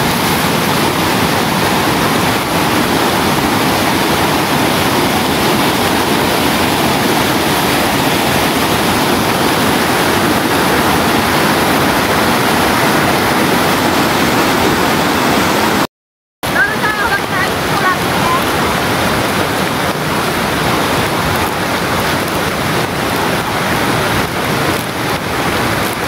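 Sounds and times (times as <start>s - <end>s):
stream rushing over rocks: 0.0s - 26.0s.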